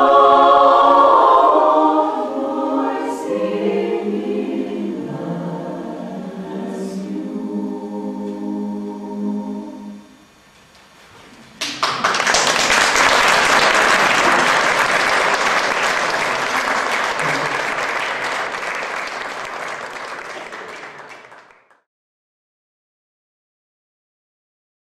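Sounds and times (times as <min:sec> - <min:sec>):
audience applauding: 0:11.6 - 0:21.8.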